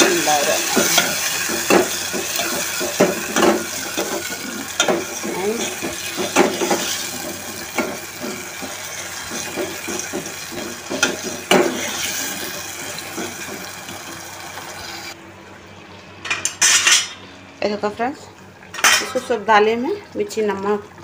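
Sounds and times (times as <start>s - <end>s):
vegetables sizzling in a pot: 0.0s - 15.2s.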